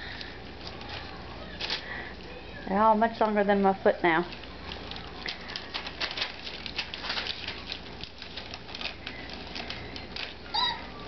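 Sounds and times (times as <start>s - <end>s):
puppies lapping and chewing: 4.3s - 11.0s.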